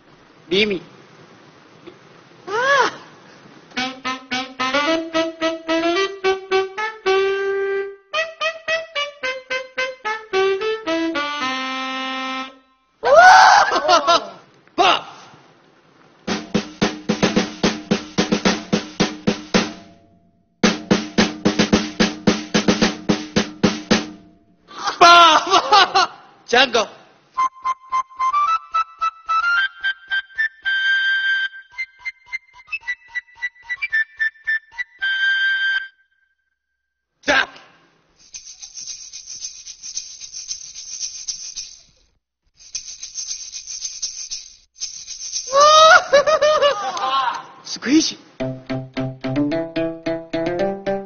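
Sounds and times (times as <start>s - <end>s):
maraca rattling: 16.3s - 19.9s, 38.2s - 46.2s
drum beaten with sticks: 16.3s - 24.6s, 48.4s - 51.0s.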